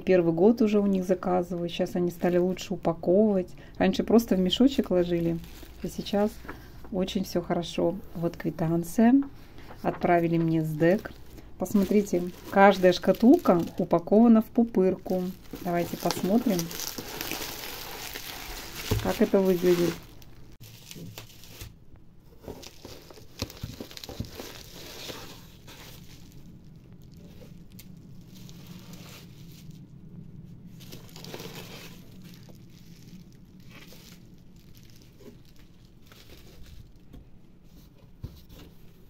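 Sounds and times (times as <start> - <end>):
bubble wrap crinkling: 2.0 - 6.8, 9.6 - 39.0.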